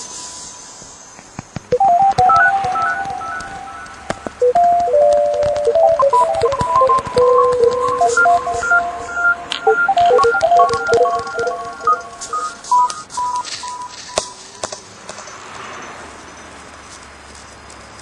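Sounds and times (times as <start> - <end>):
clicks: 1.2 - 14.8
electronic dialing beeps: 1.7 - 14.6.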